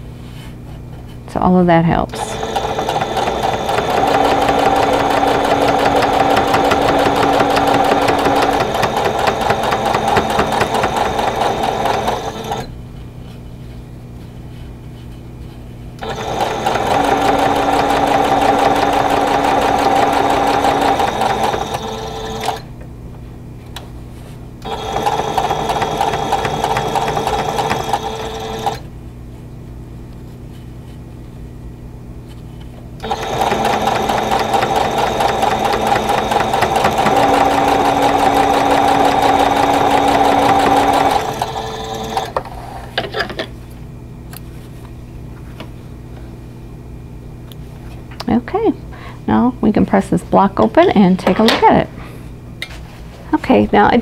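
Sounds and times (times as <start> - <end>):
sewing machine stitching: 2.2 - 12.7, 16.0 - 22.7, 24.6 - 28.8, 33.0 - 42.4.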